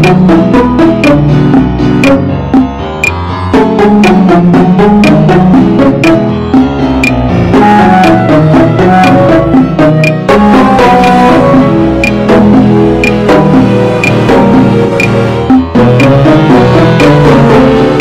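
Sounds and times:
background music melody: 0.0s - 18.0s
sharp percussive click: 12.0s - 12.2s, 13.0s - 13.2s, 14.0s - 14.2s, 15.0s - 15.2s.

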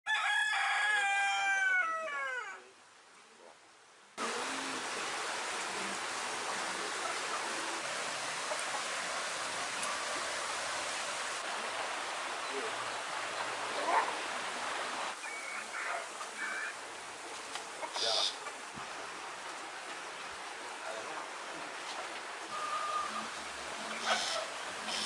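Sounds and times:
rooster crowing: 0.1s - 2.6s
outdoor background hiss: 0.1s - 25.0s.

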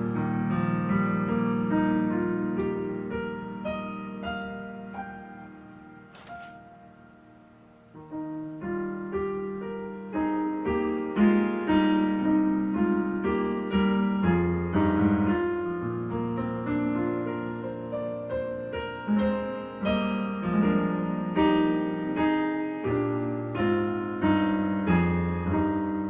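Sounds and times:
piano playing slow hymn chords: 0.0s - 26.0s
paper rustling: 6.1s - 6.7s.

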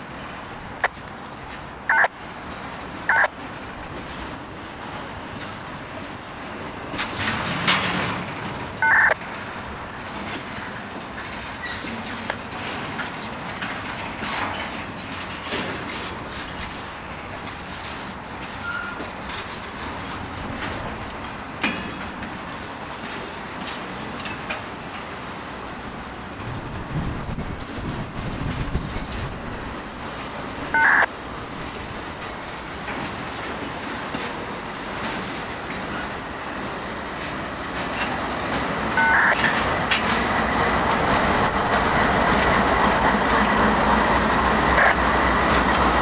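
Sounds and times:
freight cars rumbling: 0.0s - 46.0s
wheel clicks and clanks: 6.9s - 22.4s.

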